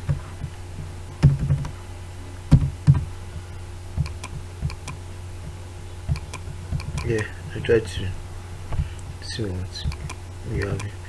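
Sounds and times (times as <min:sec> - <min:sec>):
low electrical hum: 0:00.0 - 0:11.0
computer mouse clicks: 0:04.0 - 0:05.0, 0:06.1 - 0:07.3, 0:09.9 - 0:11.0.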